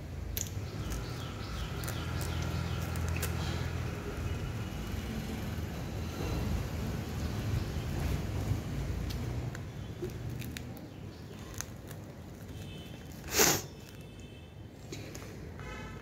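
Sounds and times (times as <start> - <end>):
plastic pouch crinkling: 10.0 - 14.2.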